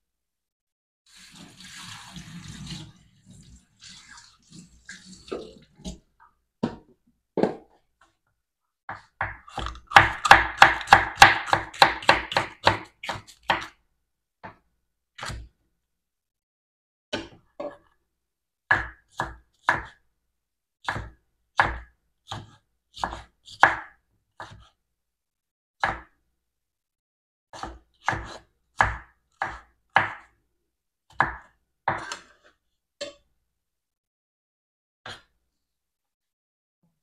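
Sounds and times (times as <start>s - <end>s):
knife chopping on wooden board: 8.9s - 13.7s, 18.7s - 20.0s, 20.8s - 24.7s, 25.8s - 26.1s, 27.5s - 30.3s, 31.1s - 32.4s.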